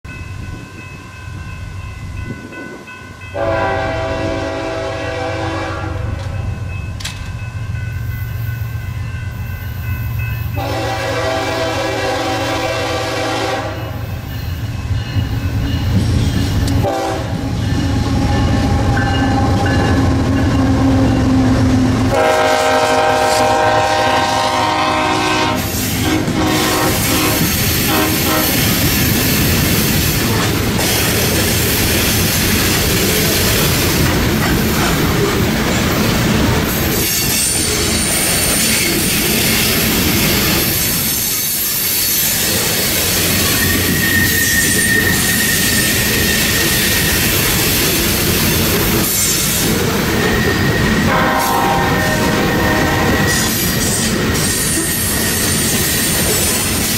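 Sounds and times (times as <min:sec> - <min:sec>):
locomotive horn blasts: 0:03.3 - 0:06.3, 0:10.6 - 0:14.1, 0:16.8 - 0:19.9, 0:22.0 - 0:28.8, 0:51.0 - 0:53.5
steel wheels clattering on rails: 0:06.2 - 0:07.5, 0:25.7 - 0:56.9.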